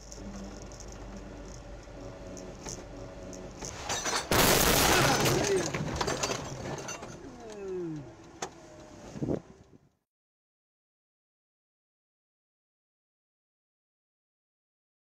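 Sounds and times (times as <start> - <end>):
car crash: 3.6 - 7.3.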